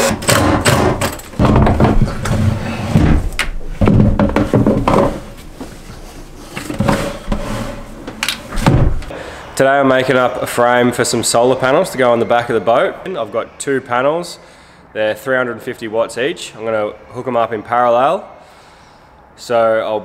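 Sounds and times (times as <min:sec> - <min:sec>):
heavy batteries clunking: 0:00.0 - 0:05.4.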